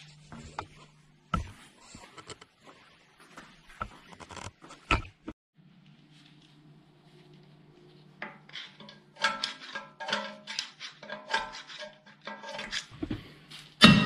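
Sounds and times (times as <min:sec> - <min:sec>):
screwdriver scraping against metal: 0:08.2 - 0:13.0.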